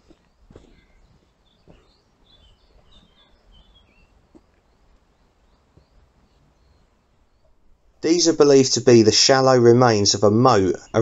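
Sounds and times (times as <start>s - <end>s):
footsteps on dirt path: 0.0s - 7.0s
faint woodland birdsong: 0.0s - 11.0s.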